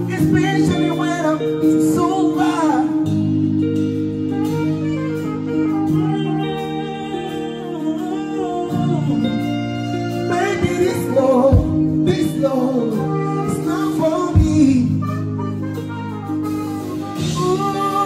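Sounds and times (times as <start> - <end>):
man singing: 0.0 - 3.2, 5.8 - 15.9, 17.1 - 18.0
live band with electric guitar: 0.0 - 18.0.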